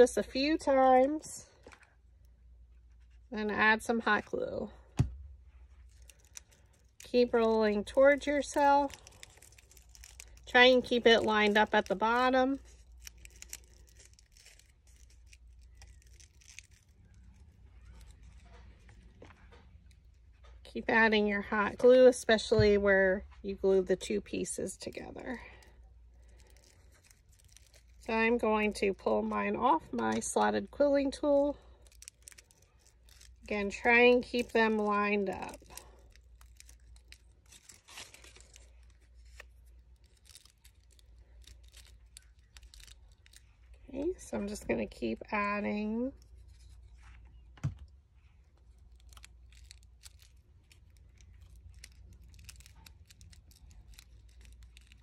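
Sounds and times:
low steady hum: 0.0 - 55.0
paper strip rustling and ticking: 5.7 - 20.6, 24.7 - 43.8, 48.5 - 55.0.

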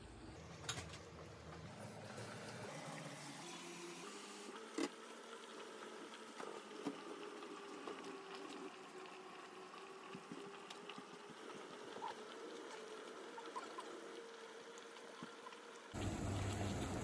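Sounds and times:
water bubbling in a pot: 4.9 - 17.0.

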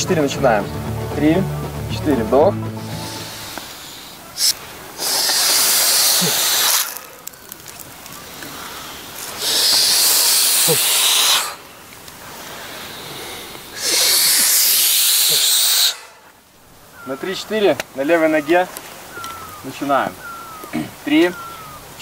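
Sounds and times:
people exhaling hard with hiss: 2.8 - 7.2, 8.2 - 16.3
quiet breathing: 8.2 - 14.2.

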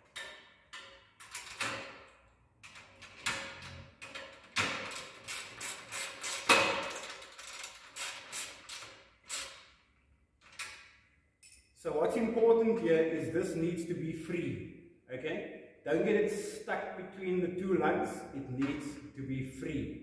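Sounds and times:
spanner clicking on bolts: 0.0 - 9.8.

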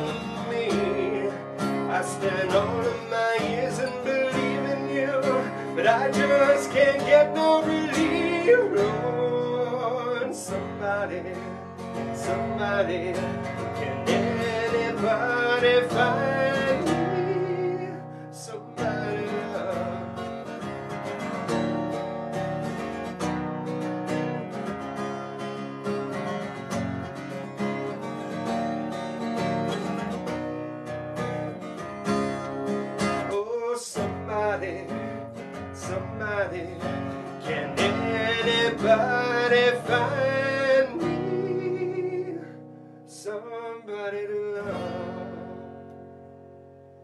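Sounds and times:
man singing: 0.0 - 20.6, 33.0 - 45.8
acoustic guitar strumming: 0.0 - 47.0.

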